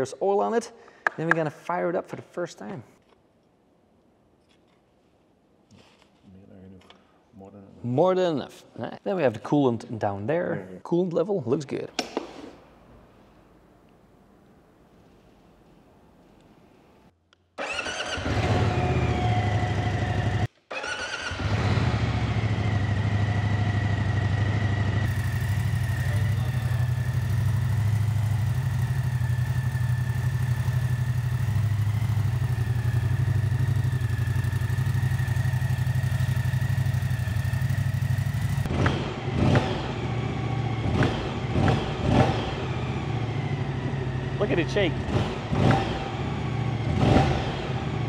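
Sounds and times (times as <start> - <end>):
motorcycle engine idling: 22.2 - 38.8.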